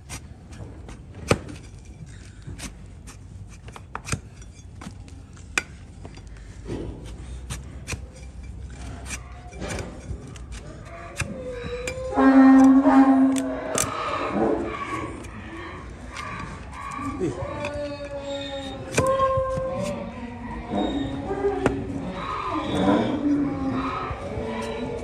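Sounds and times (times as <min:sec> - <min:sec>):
blade cutting hoof horn: 0:06.7 - 0:23.2.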